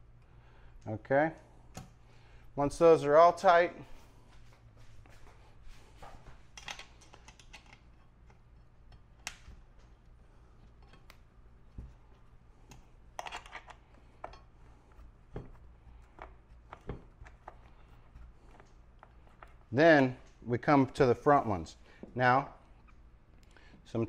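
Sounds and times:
tools clicking and scraping: 6.0 - 20.4.

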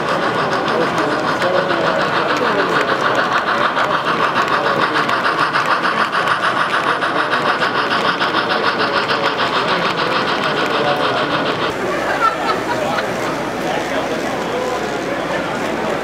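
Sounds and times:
model train rattling on track: 0.0 - 16.0.

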